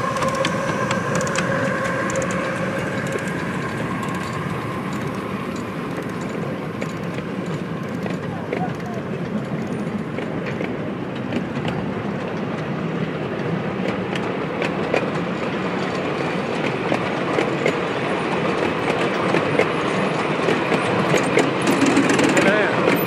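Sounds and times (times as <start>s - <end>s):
train wheels rumbling on rail: 0.0s - 23.0s
wheels clicking over rail joints: 0.0s - 23.0s.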